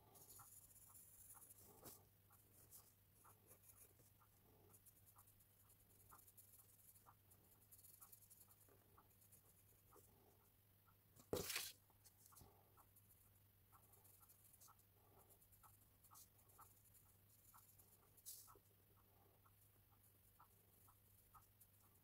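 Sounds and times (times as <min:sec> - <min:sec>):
pencil scratching on paper: 0:00.0 - 0:10.5, 0:11.2 - 0:22.0
paper rustle: 0:11.2 - 0:11.8.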